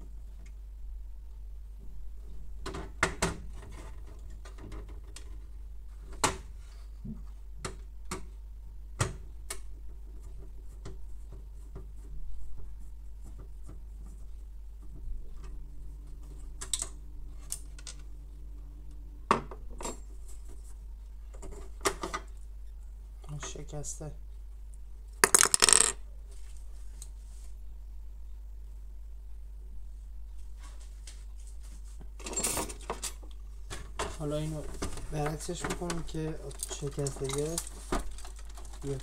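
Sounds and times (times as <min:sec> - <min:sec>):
low hum: 0:14.1 - 0:21.4.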